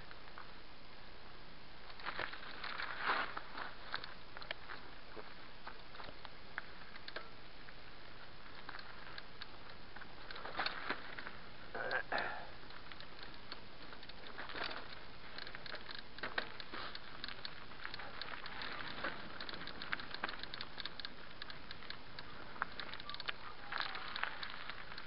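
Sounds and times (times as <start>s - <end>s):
bike tyres on stony trail: 1.8s - 25.0s
stones clicking and rattling: 12.2s - 25.0s.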